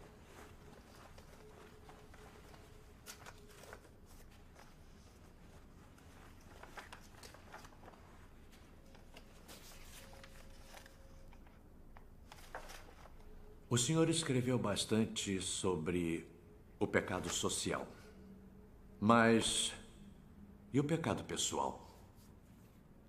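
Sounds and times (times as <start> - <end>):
faint clicks and rustles: 0.0 - 13.4
faint steady hum: 0.0 - 23.0.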